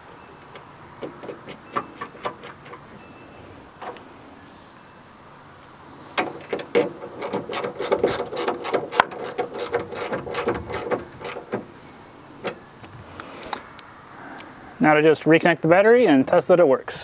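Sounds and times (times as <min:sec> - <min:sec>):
socket ratchet clicking: 0:06.7 - 0:11.6.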